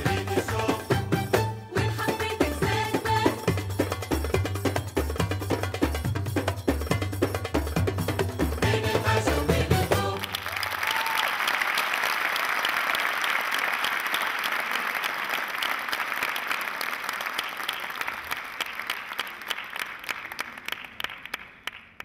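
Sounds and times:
audience applauding: 10.0s - 22.0s.

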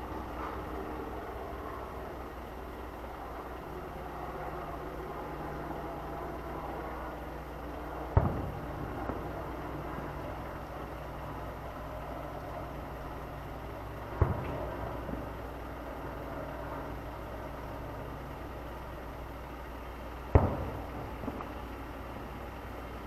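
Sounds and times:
steady low hum: 0.0s - 23.0s
distant fireworks booming: 8.1s - 11.0s, 14.1s - 15.6s, 20.3s - 21.7s.

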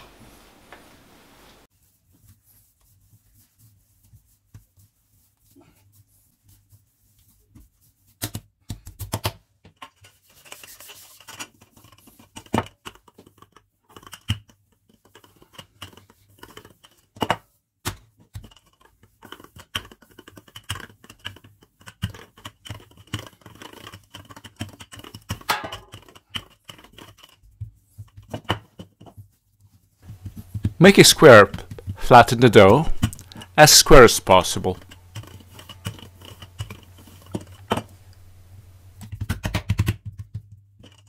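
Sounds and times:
rolling pin scraping: 30.0s - 39.2s.

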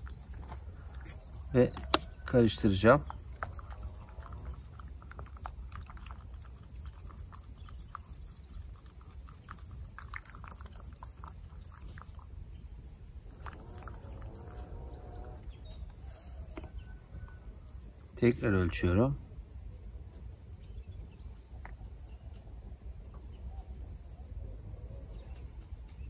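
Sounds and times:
steady low rumble: 11.2s - 16.1s
faint animal calls: 12.8s - 18.0s.

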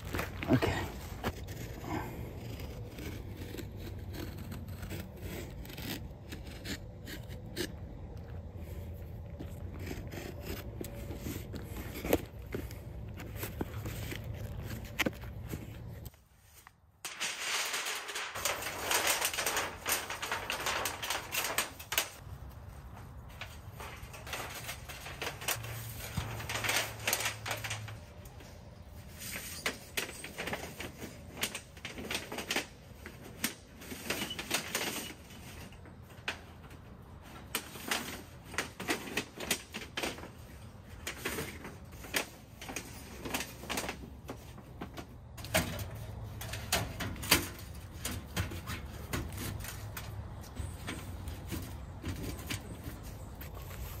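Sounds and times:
thin metal sheet crinkling: 10.9s - 54.0s.

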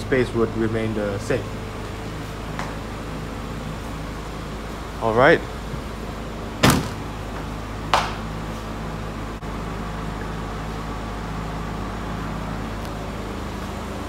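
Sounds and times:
steady low hum: 0.0s - 14.0s
car boot lid slamming: 6.6s - 7.1s.

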